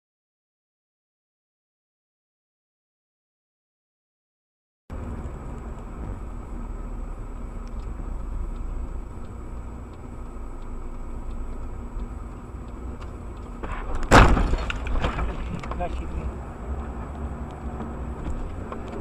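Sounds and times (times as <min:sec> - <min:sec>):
car engine and road rumble: 0:04.9 - 0:19.0.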